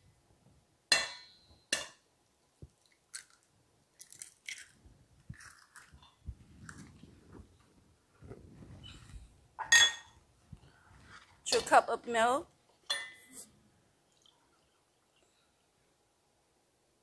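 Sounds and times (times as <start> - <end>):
eggshell cracking: 2.8 - 6.1.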